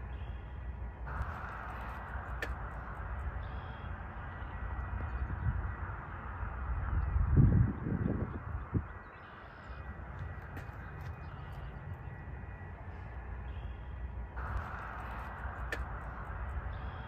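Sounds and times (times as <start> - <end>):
distant traffic rumble: 0.0 - 17.0
train approaching: 0.0 - 17.0
crows cawing: 1.2 - 4.8.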